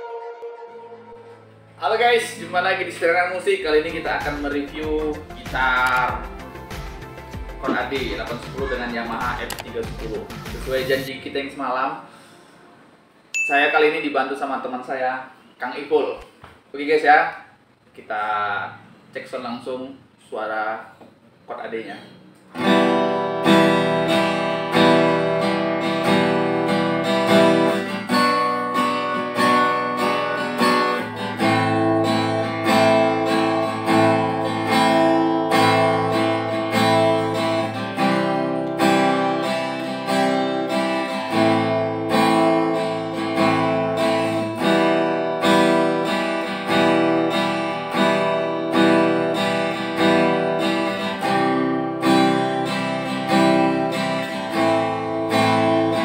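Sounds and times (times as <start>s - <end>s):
acoustic guitar strummed: 0.0s - 11.1s, 22.5s - 56.0s.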